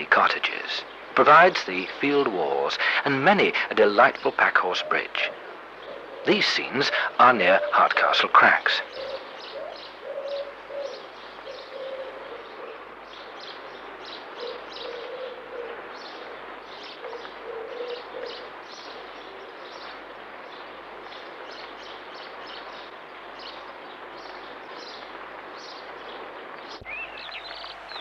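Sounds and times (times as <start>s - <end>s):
steady hiss: 0.0s - 28.0s
low cooing bird call: 4.8s - 7.9s, 8.8s - 23.6s, 24.3s - 28.0s
high bird chirps: 26.8s - 28.0s.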